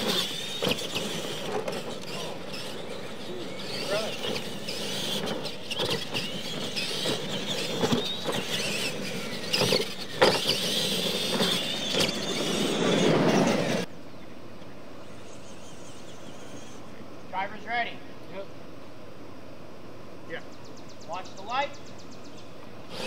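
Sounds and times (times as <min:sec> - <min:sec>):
toy truck motor whine: 0:00.0 - 0:13.9, 0:15.0 - 0:16.9
trucks landing knocks: 0:00.0 - 0:13.9.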